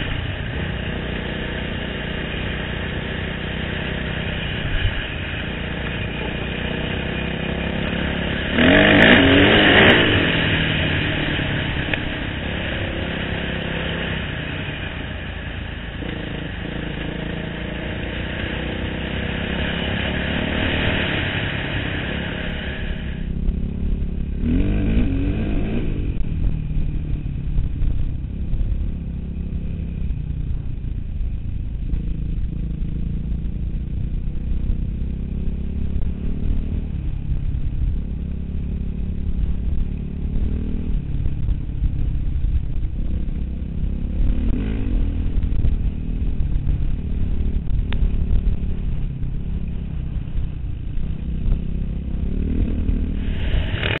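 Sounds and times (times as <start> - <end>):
dirt bike engine accelerating: 0.0 - 54.0.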